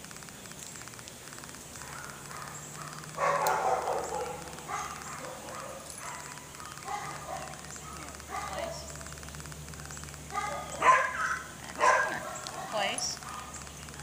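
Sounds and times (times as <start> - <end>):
dog barking: 1.9 - 8.9, 10.3 - 13.6.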